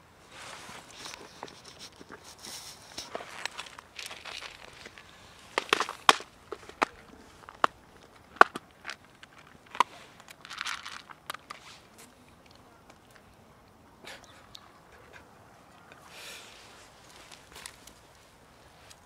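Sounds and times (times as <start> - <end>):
kibble and plastic tubs clicking: 3.0 - 11.6.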